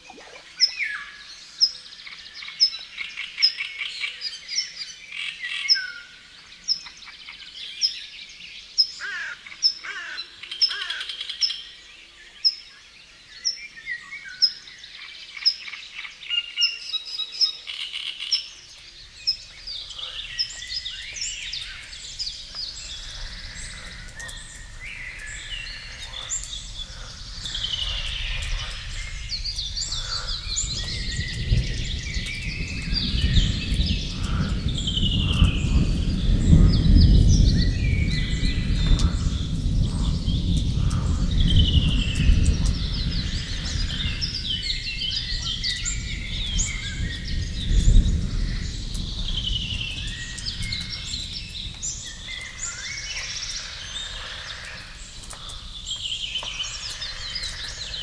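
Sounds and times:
songbirds singing: 0.0s - 58.0s
low rumbling noise: 19.0s - 58.0s.

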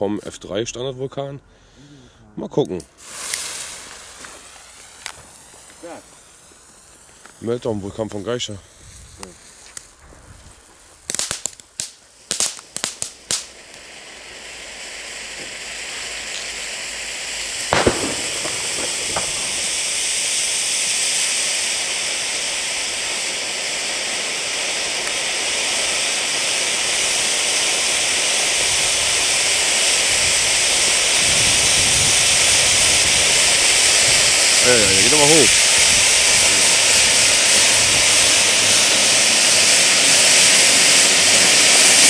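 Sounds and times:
firework fountain crackling and hissing: 2.9s - 42.0s
sharp pop: 17.8s - 20.4s.

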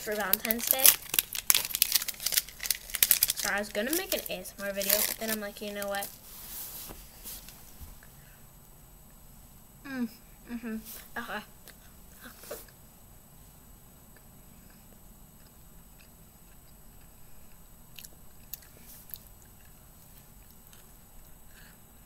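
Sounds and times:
faint chewing: 14.1s - 22.0s.

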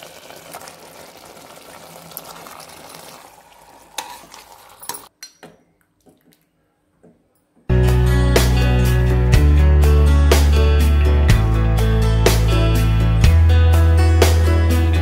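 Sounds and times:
curry pot hissing: 0.0s - 4.9s
loud music: 7.7s - 15.0s.

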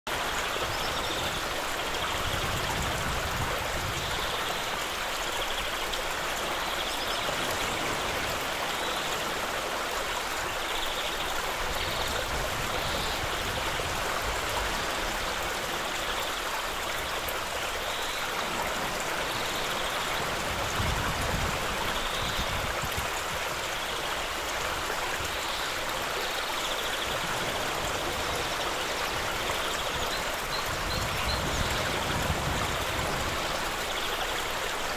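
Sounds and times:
stream rushing over gravel: 0.1s - 34.9s.

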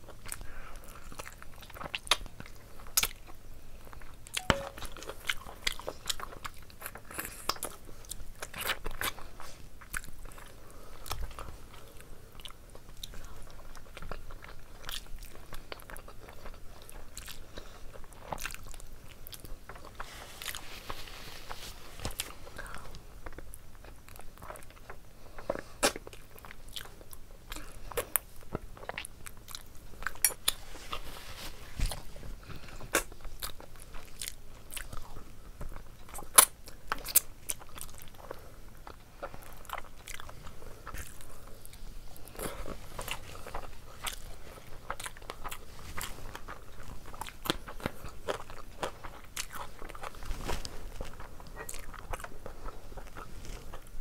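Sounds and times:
person chewing: 4.0s - 20.6s, 22.1s - 31.0s, 31.9s - 54.0s.

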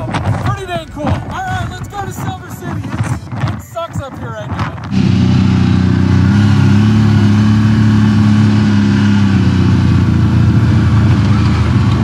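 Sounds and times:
quad bike engine running: 4.6s - 12.0s.

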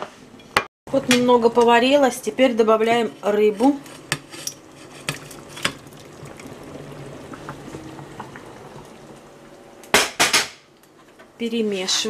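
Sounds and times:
stew bubbling in a pot: 3.3s - 9.9s.

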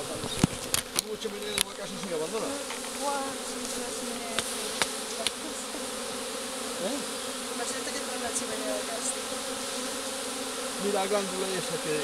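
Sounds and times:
bee swarm humming: 0.0s - 12.0s.

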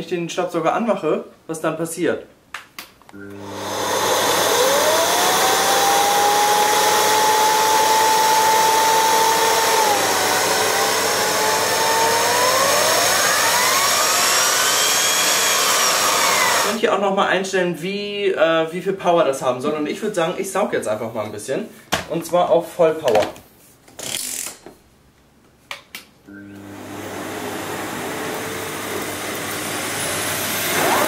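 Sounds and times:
vacuum cleaner motor whoosh: 3.3s - 16.8s, 26.4s - 31.0s.

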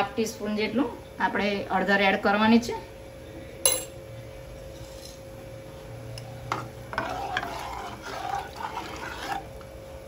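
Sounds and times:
spoon stirring liquid in a pot: 6.2s - 9.8s
liquid sloshing: 7.0s - 9.5s.

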